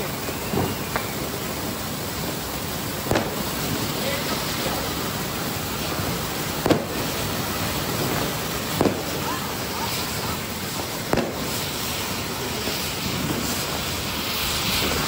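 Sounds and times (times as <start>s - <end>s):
fireworks spraying sparks hiss: 0.0s - 15.0s
sharp cracks: 11.1s - 11.8s.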